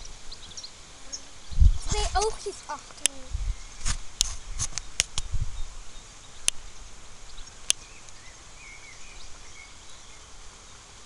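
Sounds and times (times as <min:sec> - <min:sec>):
sharp clicks: 0:03.8 - 0:05.3
faint bird chirps: 0:04.5 - 0:10.8.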